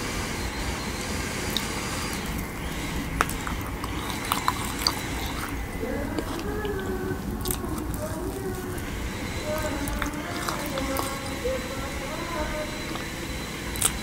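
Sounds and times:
low background noise: 0.0s - 14.0s
wet mouth clicks: 1.5s - 11.4s, 12.8s - 14.0s.

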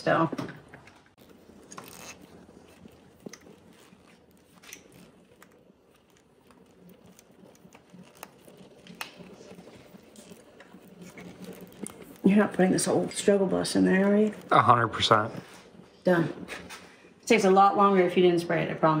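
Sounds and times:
rubber grommet rubbing and clicking: 1.1s - 14.6s.

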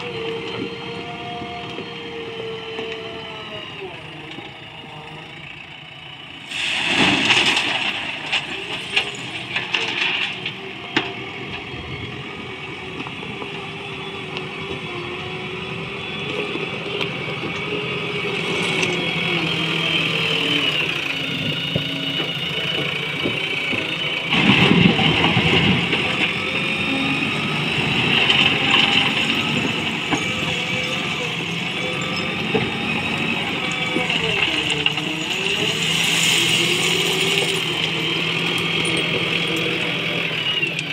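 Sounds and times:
diesel engine revving: 0.0s - 40.9s
stones pouring into steel truck: 6.5s - 10.4s, 34.5s - 38.0s.

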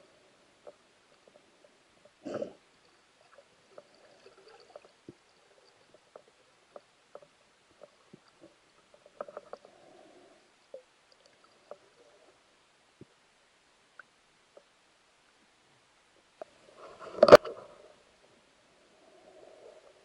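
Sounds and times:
faint underwater hiss: 0.0s - 20.0s
small clicks and knocks: 9.0s - 9.7s.

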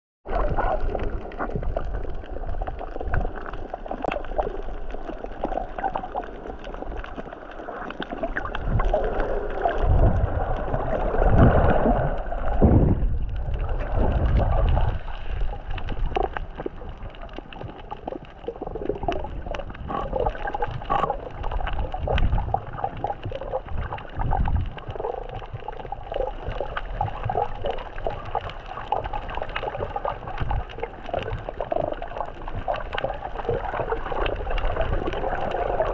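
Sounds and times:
underwater gurgling and sloshing: 0.2s - 35.9s
small crackles and clicks: 0.3s - 35.9s
low underwater rumbling surges: 6.3s - 28.4s.

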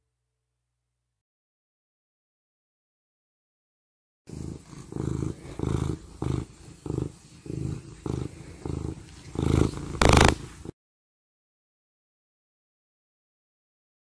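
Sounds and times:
cat purring: 4.3s - 10.7s.

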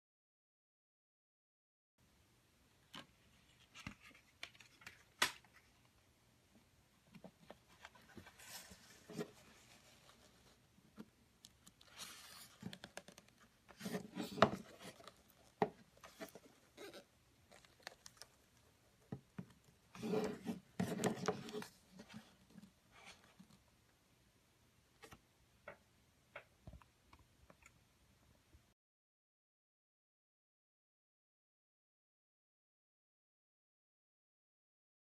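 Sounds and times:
card rustling and sliding: 7.4s - 10.6s, 11.7s - 18.3s, 19.9s - 23.5s.

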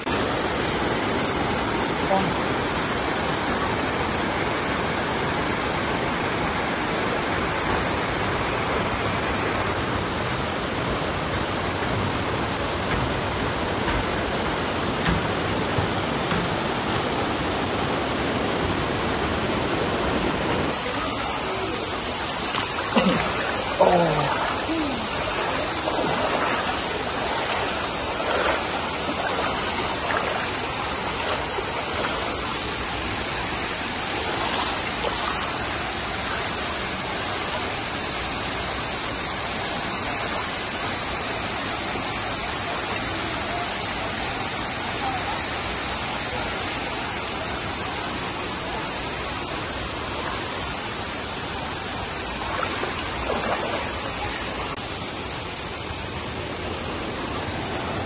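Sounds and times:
waterfall rushing: 0.0s - 58.0s
faint voices: 20.6s - 37.1s.

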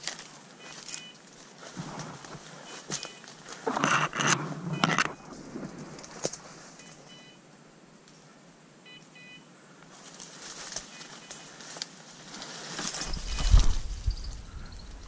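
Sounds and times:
brush rustling: 0.0s - 7.2s, 9.8s - 15.0s
short electronic beeps: 0.6s - 1.2s, 2.6s - 3.3s, 6.8s - 7.4s, 8.8s - 9.5s.

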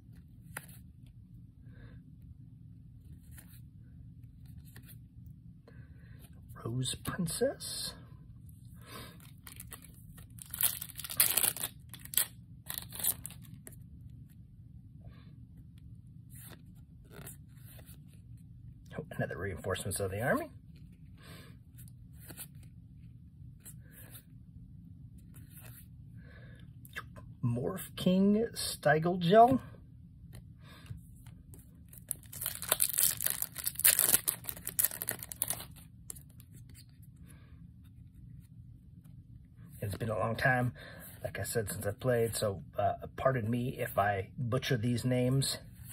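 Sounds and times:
cards being handled: 0.1s - 1.1s, 4.3s - 5.1s, 9.2s - 13.8s, 16.2s - 18.4s, 30.2s - 37.0s
foil wrapper tearing and crinkling: 10.3s - 13.4s, 32.0s - 35.8s.

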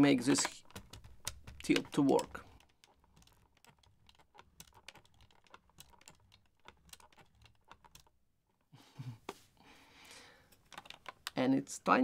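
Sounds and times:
plastic hinge clicks: 0.2s - 8.1s.

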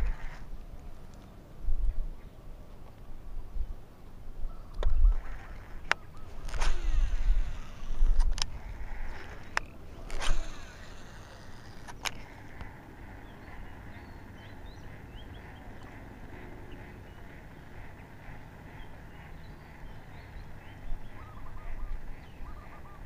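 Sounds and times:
fishing reel spool whirring: 0.0s - 0.6s, 5.1s - 19.1s
faint bird calls: 4.4s - 23.0s
reel and rod clicks: 4.7s - 12.8s.

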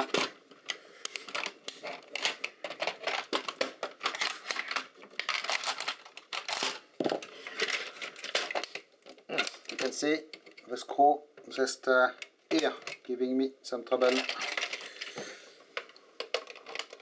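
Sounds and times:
plastic housing clicking and cracking: 0.0s - 10.7s, 12.2s - 13.1s, 15.8s - 17.0s.

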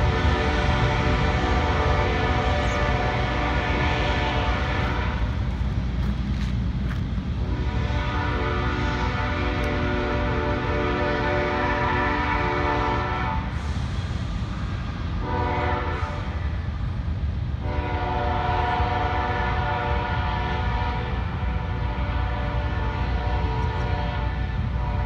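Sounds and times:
locomotive horn blasts: 0.0s - 5.3s, 7.4s - 13.5s, 15.2s - 16.4s, 17.6s - 25.0s
passing train rumble: 0.0s - 25.0s.

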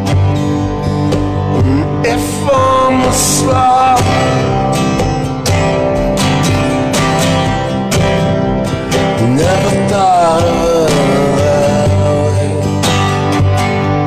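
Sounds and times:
acoustic guitar strumming: 0.0s - 14.0s
man singing: 1.5s - 4.7s, 9.1s - 13.2s.

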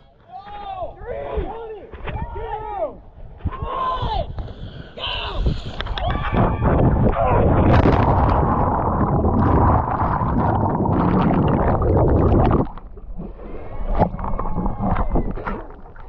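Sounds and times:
wind rush: 3.3s - 15.8s
underwater bubbling: 4.2s - 16.0s
water splashing: 5.4s - 16.0s.

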